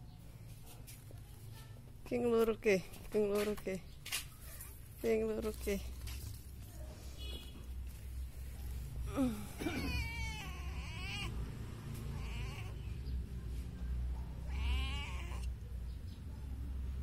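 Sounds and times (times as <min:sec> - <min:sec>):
cat meowing: 0:09.8 - 0:11.4, 0:12.0 - 0:12.9, 0:14.4 - 0:15.6.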